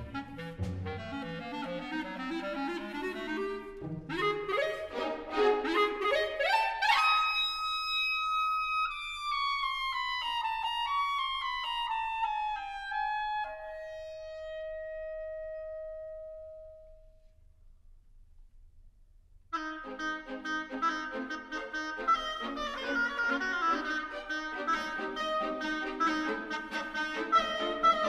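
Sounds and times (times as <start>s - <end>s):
orchestra playing chords: 0.0s - 6.1s
solo woodwind: 0.0s - 17.4s, 19.5s - 28.0s.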